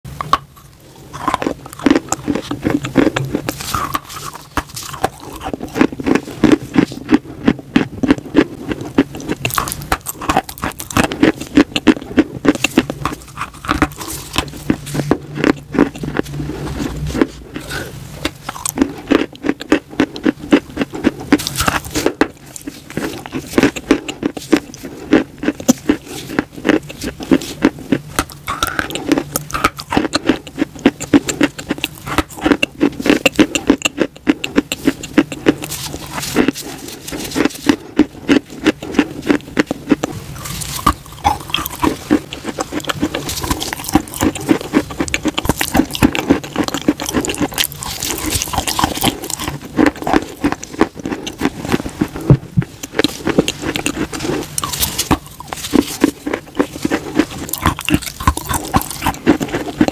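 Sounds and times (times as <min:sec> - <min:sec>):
chalk crunching while chewed: 0:00.1 - 0:59.9.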